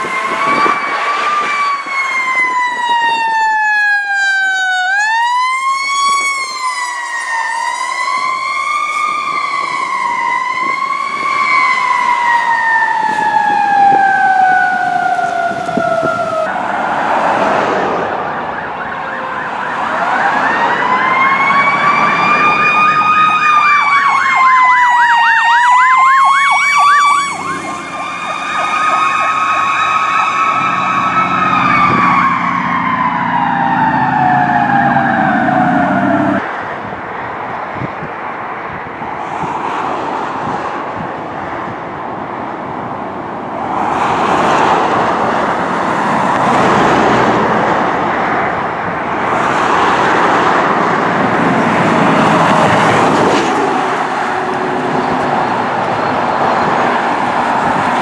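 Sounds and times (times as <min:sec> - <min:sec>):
siren fast yelp: 0:00.0 - 0:16.7, 0:18.3 - 0:36.4
siren steady tone: 0:00.0 - 0:17.0, 0:18.0 - 0:36.4, 0:51.4 - 0:58.0
fire truck siren wailing: 0:00.0 - 0:36.5, 0:40.4 - 0:58.0.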